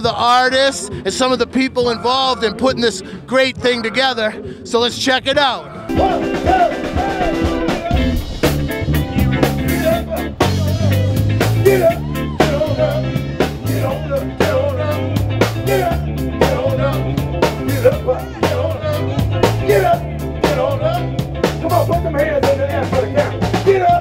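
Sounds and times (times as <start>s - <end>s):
blues band music: 0.0s - 24.0s
drum kit beat: 5.9s - 24.0s.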